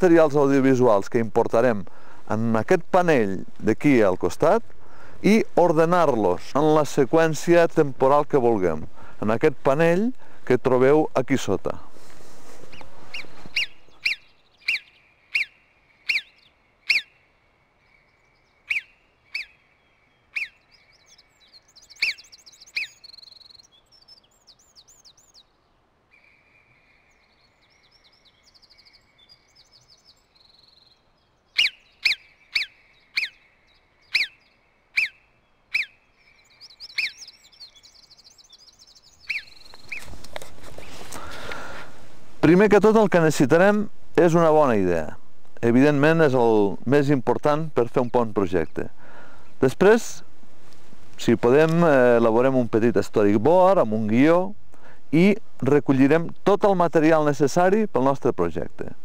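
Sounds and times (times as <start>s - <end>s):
faint bird chirps: 12.7s - 40.1s.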